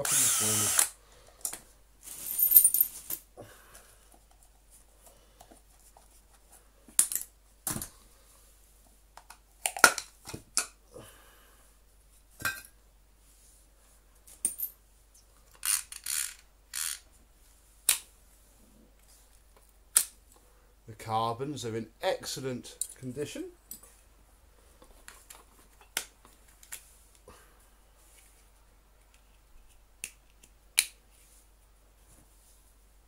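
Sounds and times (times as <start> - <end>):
drill set down: 0.0 - 0.9.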